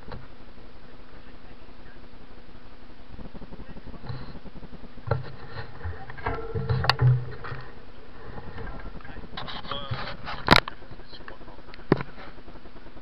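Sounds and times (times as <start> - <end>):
wind buffeting microphone: 0.0 - 13.0
handling knocks: 5.1 - 9.0.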